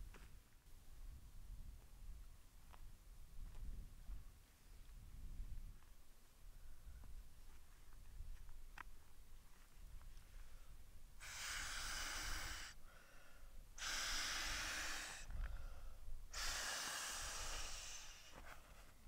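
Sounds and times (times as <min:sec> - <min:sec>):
person breathing heavily: 0:10.3 - 0:18.8.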